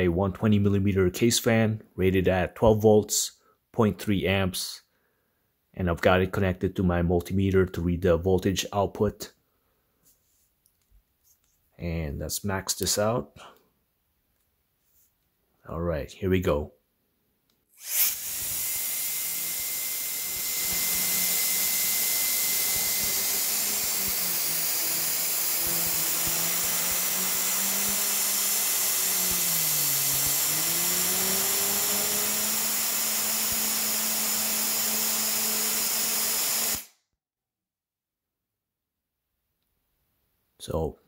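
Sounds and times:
air duster blowing: 0:17.8 - 0:33.6.

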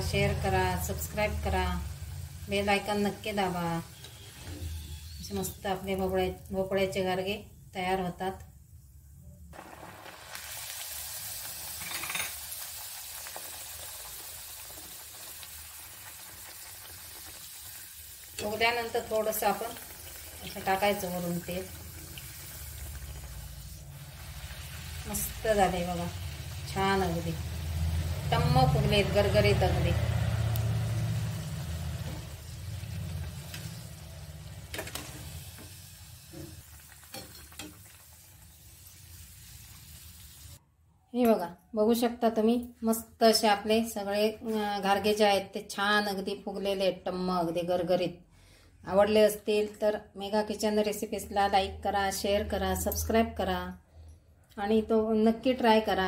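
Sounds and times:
hot oil sizzling: 0:00.0 - 0:07.2, 0:09.5 - 0:40.6.

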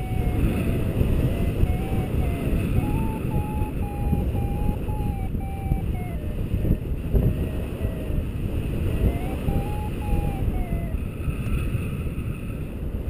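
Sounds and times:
variometer beeps: 0:00.0 - 0:11.0
wind buffeting microphone: 0:00.0 - 0:13.0.

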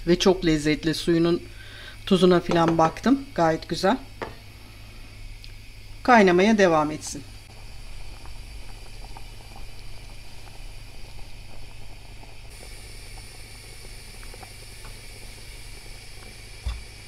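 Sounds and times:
stew bubbling in pot: 0:06.7 - 0:17.0.

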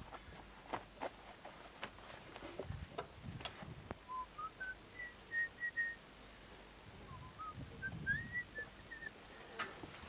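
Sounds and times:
person whistling a tune: 0:04.1 - 0:06.0, 0:07.1 - 0:09.1.

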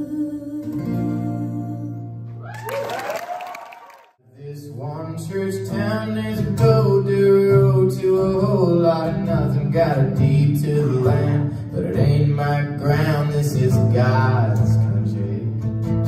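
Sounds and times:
man singing: 0:04.2 - 0:15.6
strummed acoustic guitar: 0:04.4 - 0:16.0.

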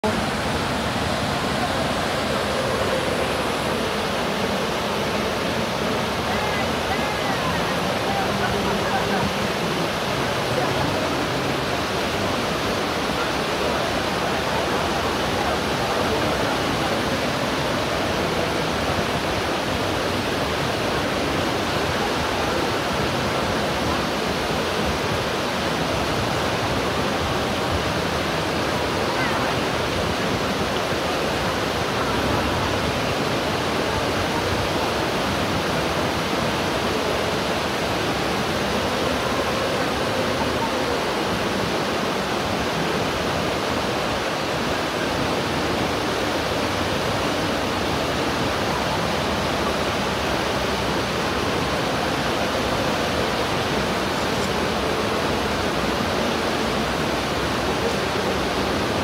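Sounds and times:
water rushing over weir: 0:00.0 - 0:59.0.

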